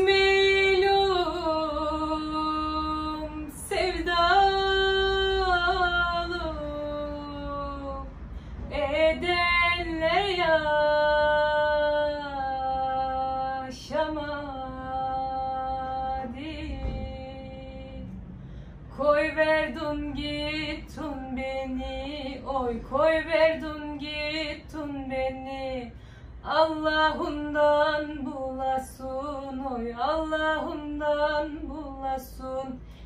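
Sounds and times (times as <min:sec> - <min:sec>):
woman singing unaccompanied: 0:00.0 - 0:18.2, 0:18.9 - 0:32.8.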